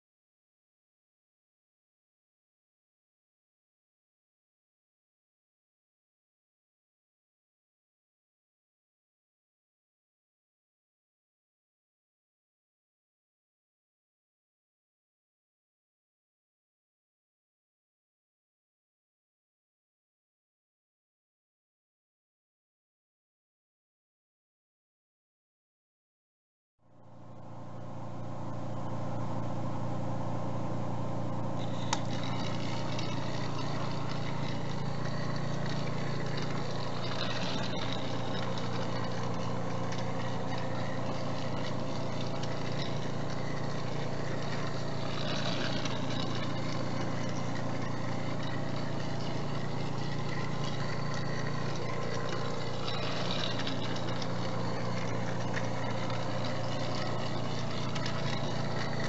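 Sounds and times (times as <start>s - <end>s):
toy train motor whirring: 31.5s - 59.0s.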